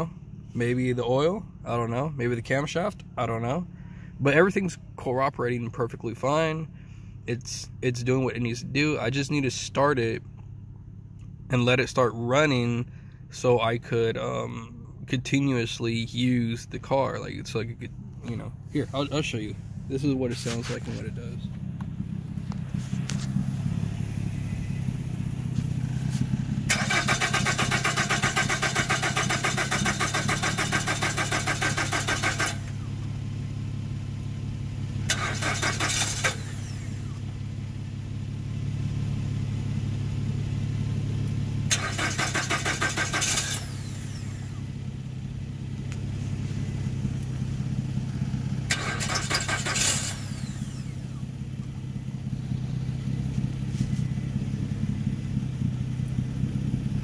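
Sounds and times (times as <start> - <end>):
engine cranking without starting: 26.6 - 32.8, 35.0 - 37.0, 41.7 - 44.5, 48.6 - 51.2.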